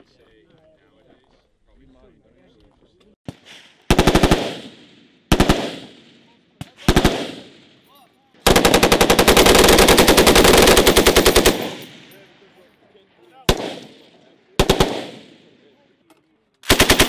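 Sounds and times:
gunfire echo: 3.3 - 7.9, 8.5 - 12.7, 13.4 - 15.8
machine gun bursts: 8.4 - 12.1, 14.6 - 15.2, 16.6 - 17.0.

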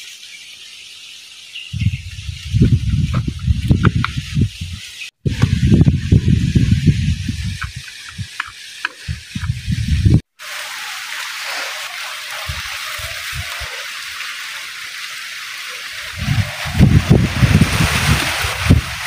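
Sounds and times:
steady outdoor hiss: 0.0 - 19.0
wind buffeting microphone: 1.7 - 10.2, 12.4 - 13.8, 15.9 - 19.0.

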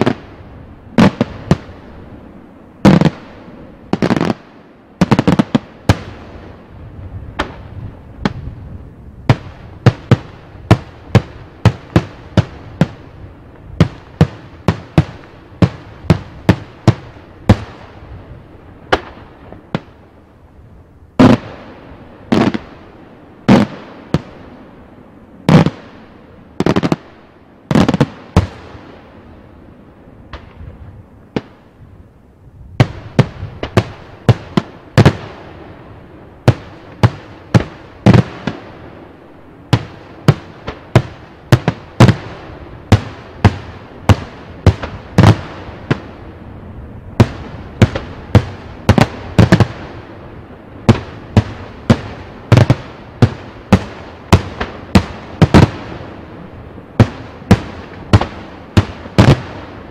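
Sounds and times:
fireworks bursting with sharp bangs: 0.0 - 59.9
small firework pops: 30.3 - 30.7.

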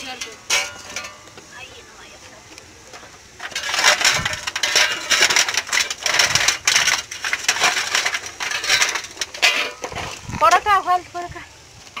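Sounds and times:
stones clattering together: 2.9 - 10.7.

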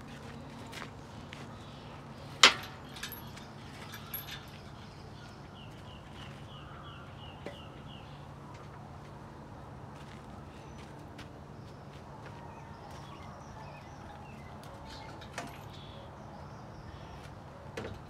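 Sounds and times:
metal tools clinking: 2.2 - 5.0.

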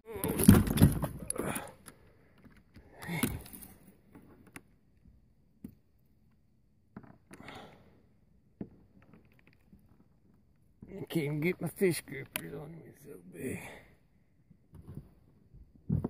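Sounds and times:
breathy sound: 1.2 - 3.9, 7.3 - 8.0, 13.4 - 14.0
handling knocks and scrapes: 14.8 - 16.0.

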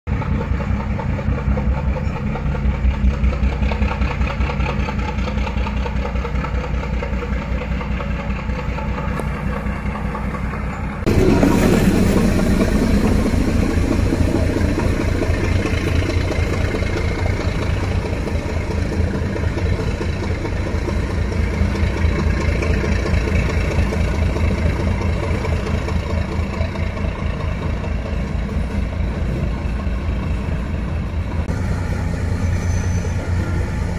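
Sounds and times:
diesel locomotive engine rumbling: 0.1 - 33.9.

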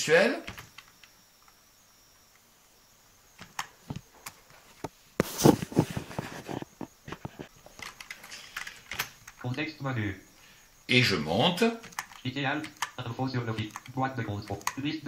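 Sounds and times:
computer keyboard keys clicking: 7.8 - 9.6, 11.8 - 14.9.

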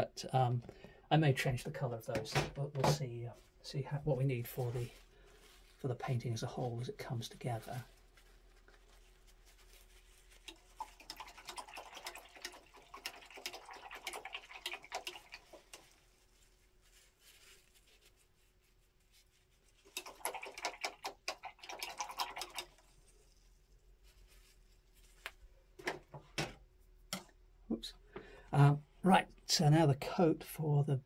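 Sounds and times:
paintbrush scrubbing on paper: 4.2 - 25.2.

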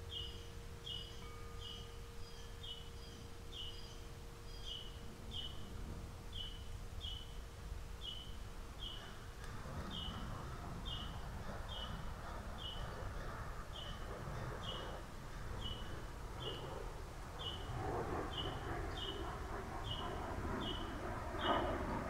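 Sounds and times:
bird chirping: 0.0 - 16.8, 17.4 - 21.8
low outdoor rumble: 0.0 - 22.0.

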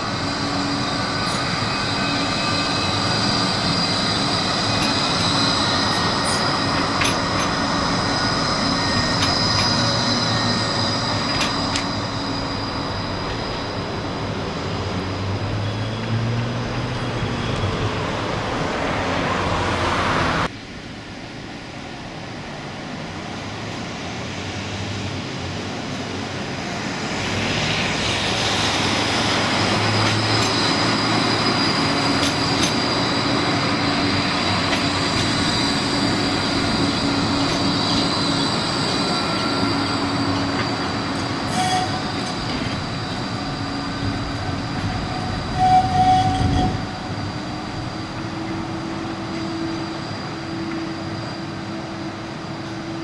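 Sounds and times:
tram rolling along track: 0.0 - 53.0.

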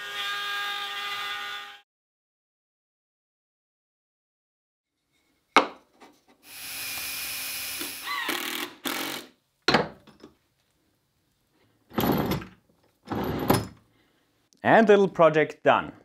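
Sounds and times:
power drill driving screws: 6.4 - 9.4.

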